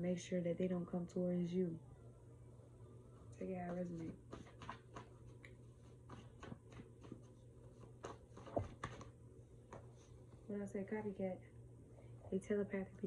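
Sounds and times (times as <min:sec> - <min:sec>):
cards being shuffled: 0:03.4 - 0:10.4.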